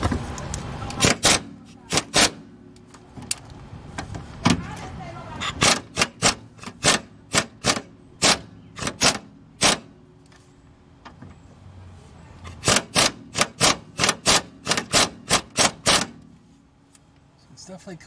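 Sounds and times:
impact wrench hammering bolt: 0:05.5 - 0:09.9, 0:12.6 - 0:16.2.

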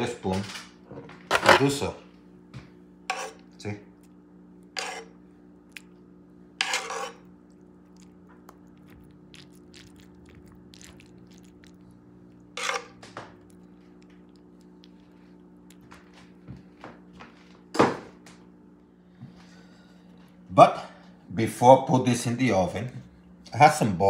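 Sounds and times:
low steady hum: 0:00.0 - 0:24.0
metal spoon scraping foil pan: 0:06.6 - 0:07.2, 0:12.6 - 0:13.0.

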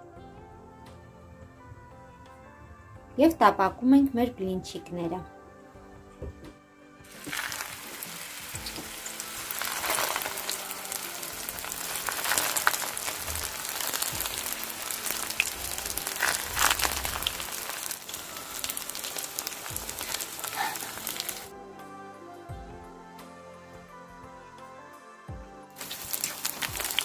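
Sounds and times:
food sizzling in oil: 0:07.1 - 0:21.5, 0:25.8 - 0:27.0.

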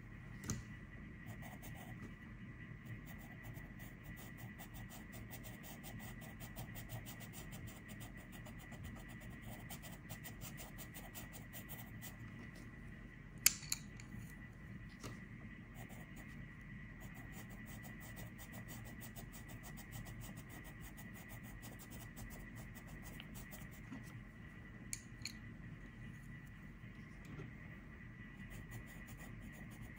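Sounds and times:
pencil scratching on paper: 0:01.2 - 0:02.0, 0:02.8 - 0:12.2, 0:15.7 - 0:16.4, 0:17.0 - 0:24.2, 0:28.4 - 0:29.9.

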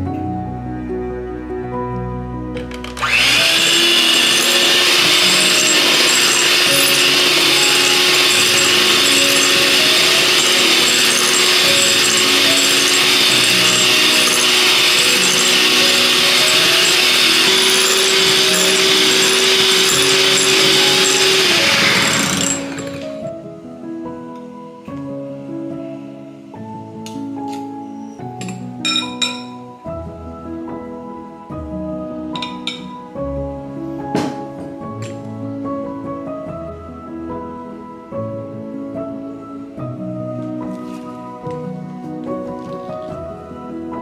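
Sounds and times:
electric hand mixer running: 0:02.9 - 0:23.2.

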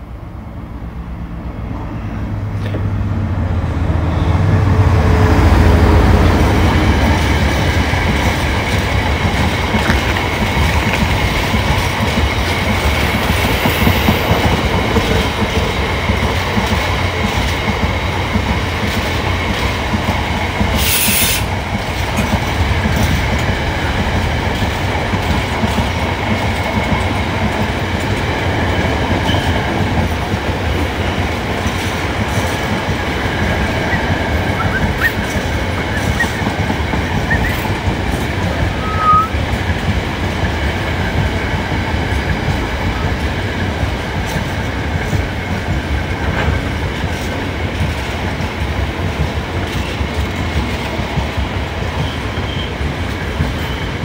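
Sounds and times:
freight train rumbling past: 0:00.0 - 0:54.0
wheels clickety-clack on rails: 0:01.3 - 0:54.0
short hiss: 0:20.8 - 0:21.5
faint wheel squeal: 0:33.9 - 0:36.4, 0:38.7 - 0:39.4.

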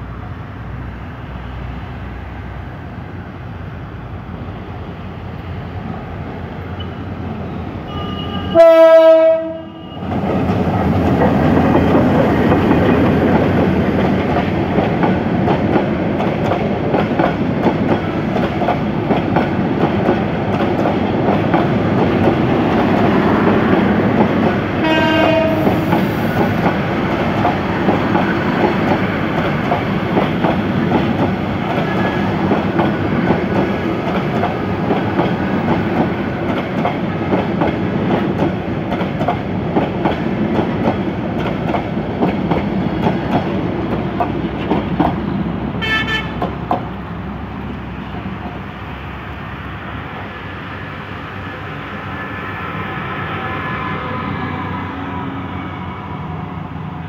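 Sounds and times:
diesel locomotive horn: 0:07.8 - 0:10.2, 0:24.8 - 0:26.3, 0:45.8 - 0:46.5, 0:51.8 - 0:56.7
train wheels clattering over rail joints: 0:25.3 - 0:45.4.

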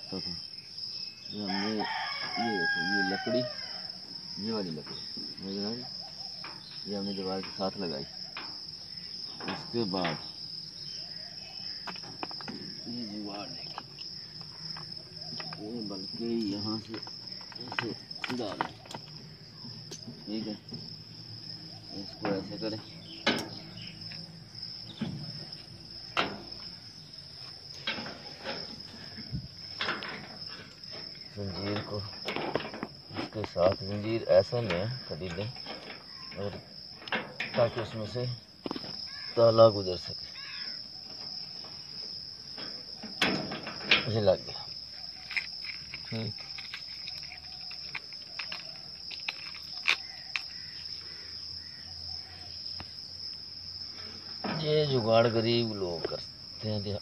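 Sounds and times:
crickets chirring: 0:00.0 - 0:57.0
chain and padlock clinking: 0:45.0 - 0:50.5.

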